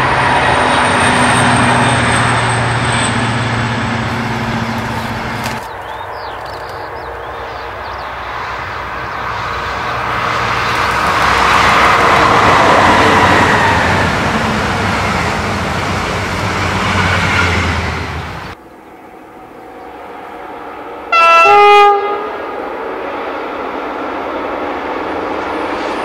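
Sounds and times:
locomotive engine drone: 0.0s - 26.0s
train wheel and rail noise: 0.0s - 26.0s.

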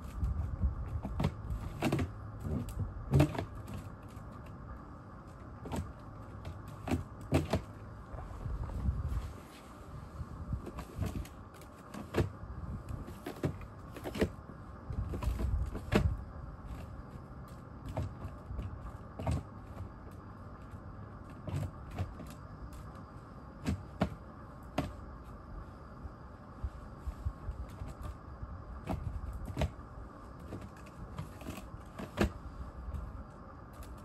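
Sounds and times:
faint steady hum: 0.0s - 34.0s
knocks against plastic: 6.8s - 7.7s, 23.6s - 25.0s
hands packing snow: 6.9s - 12.3s.

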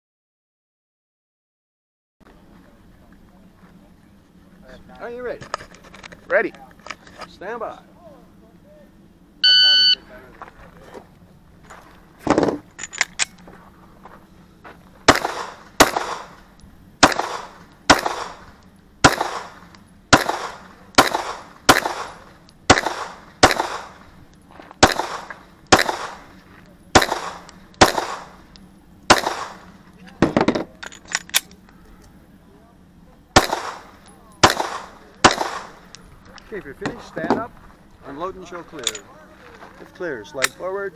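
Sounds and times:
pistol shots with echo: 15.1s - 16.4s, 17.0s - 24.0s, 24.8s - 26.3s, 26.9s - 28.4s, 29.1s - 29.7s, 33.4s - 36.0s.

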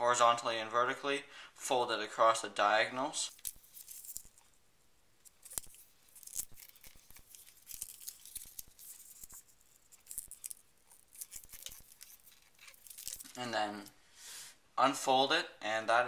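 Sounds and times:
paper rustling and crinkling: 3.3s - 4.6s, 5.2s - 13.5s
paper creasing clicks: 5.3s - 13.4s.

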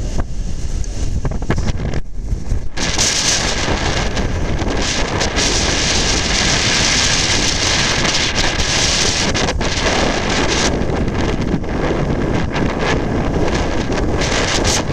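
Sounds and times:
wind buffeting microphone: 0.0s - 14.9s
wind-driven snow hissing: 0.0s - 14.9s.

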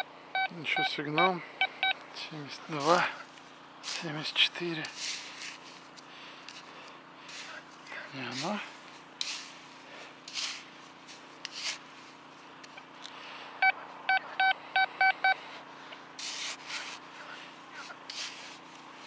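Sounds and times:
metal detector short beeps: 0.0s - 2.0s, 13.6s - 15.4s
sand scraped by hand: 2.7s - 3.1s, 3.8s - 6.7s, 7.3s - 12.5s, 16.2s - 19.0s.

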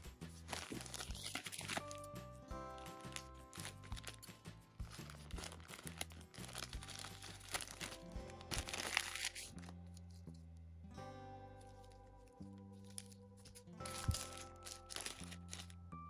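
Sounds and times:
background music: 0.0s - 16.0s
plastic bag crinkling: 0.4s - 2.1s, 2.7s - 10.2s, 12.8s - 15.8s
scissors snipping plastic: 0.5s - 2.0s, 12.8s - 15.7s.

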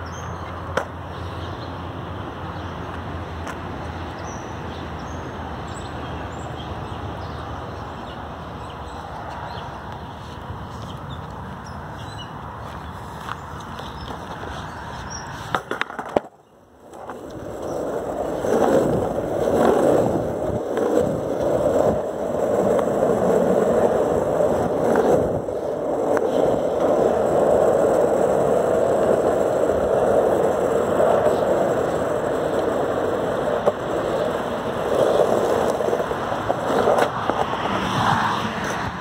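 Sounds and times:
skateboard wheels rolling on asphalt: 0.0s - 39.0s
skateboard clacks: 0.4s - 1.1s, 2.8s - 4.0s, 10.8s - 39.0s.

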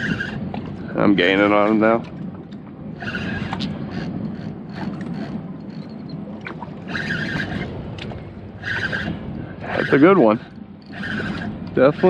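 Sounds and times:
fishing reel whirring: 0.0s - 0.4s, 3.0s - 6.1s, 6.9s - 7.7s, 8.6s - 12.0s
wind and water noise: 0.0s - 12.0s.

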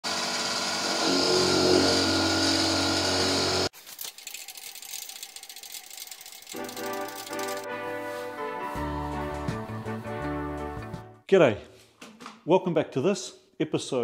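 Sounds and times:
metal lathe cutting steel: 0.1s - 3.7s
music: 6.6s - 11.2s.

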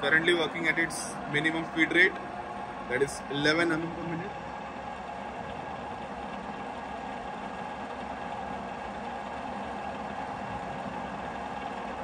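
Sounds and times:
milling machine humming: 0.0s - 12.0s.

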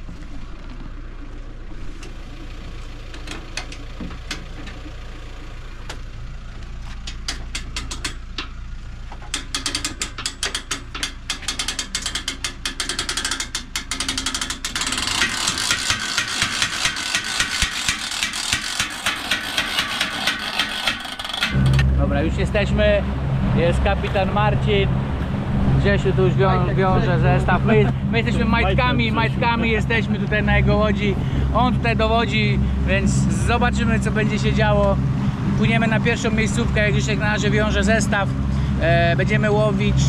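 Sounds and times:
winch ratchet clicking: 7.0s - 8.6s, 9.2s - 21.8s.

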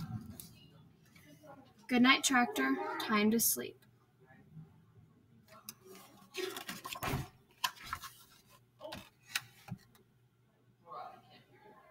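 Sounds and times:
book pages turning: 5.7s - 10.0s.

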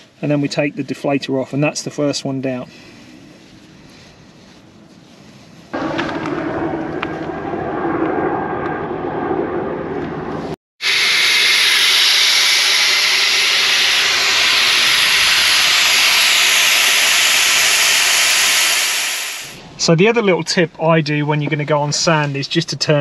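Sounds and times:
air hissing out of tyre: 10.8s - 19.6s.

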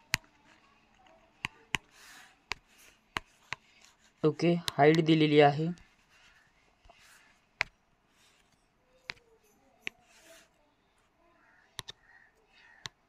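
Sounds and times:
taps on a touchscreen: 0.0s - 0.3s, 1.4s - 1.9s, 2.5s - 3.7s, 9.0s - 10.1s, 11.8s - 13.0s
soft rubbing on a screen: 0.2s - 4.2s, 5.8s - 7.4s, 8.1s - 10.6s.

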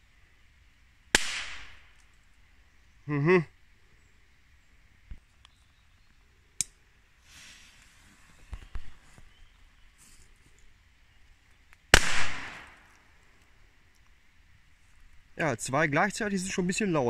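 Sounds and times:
firecracker bang: 1.2s - 1.9s, 11.9s - 12.9s
firecracker fuse fizz: 7.2s - 7.9s.

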